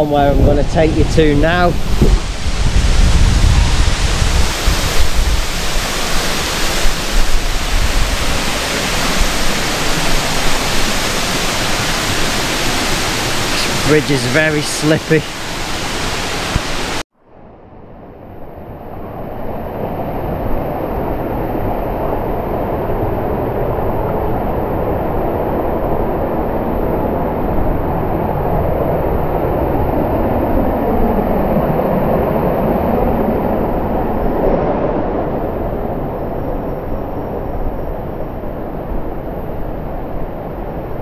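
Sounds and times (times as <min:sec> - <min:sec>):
stream water rushing over rocks: 0:04.0 - 0:17.0.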